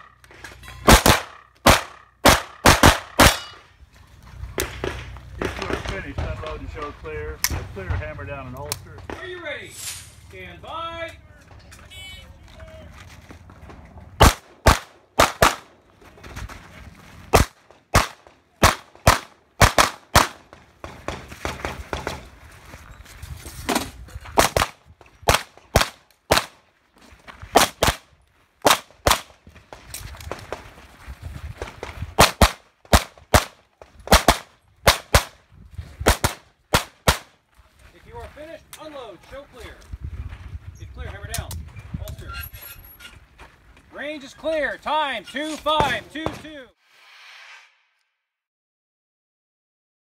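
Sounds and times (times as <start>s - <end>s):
rapid pistol fire: 0.9s - 3.4s, 34.1s - 35.3s.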